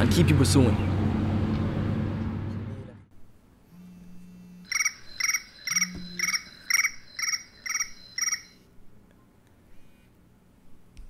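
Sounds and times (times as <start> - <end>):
mobile phone ringtone trilling: 3.9 - 8.7.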